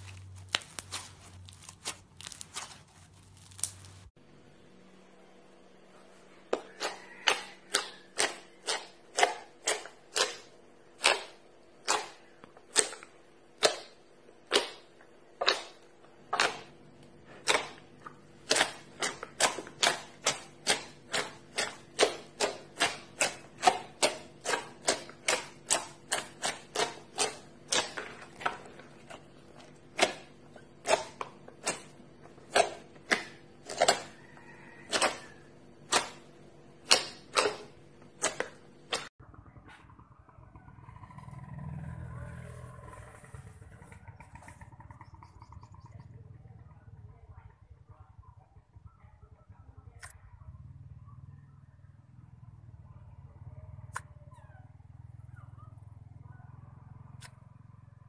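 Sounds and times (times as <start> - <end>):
slime crackling: 0.0 - 4.1.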